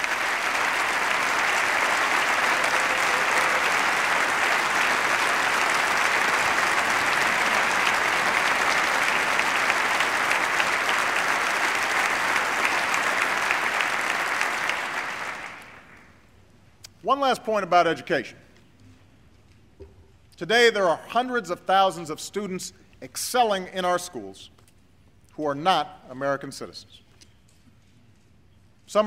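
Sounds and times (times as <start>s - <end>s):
large audience applauding: 0.0s - 16.2s.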